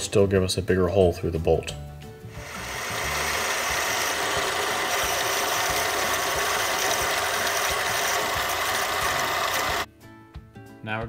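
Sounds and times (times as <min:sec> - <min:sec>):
drill scraping metal: 0:02.3 - 0:09.9
lathe motor whine: 0:02.3 - 0:09.9.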